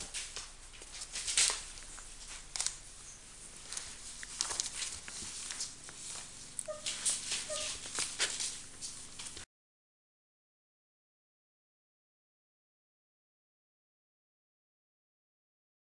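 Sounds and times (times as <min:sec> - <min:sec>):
newspaper crackling and rustling: 0:00.0 - 0:09.4
puppy squeaking: 0:06.6 - 0:08.0.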